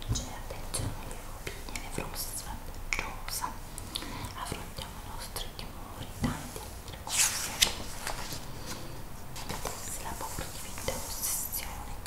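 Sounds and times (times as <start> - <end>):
soft whispering: 0.0 - 12.0
magazine page turning: 7.1 - 11.2
paper rustling: 7.1 - 11.4.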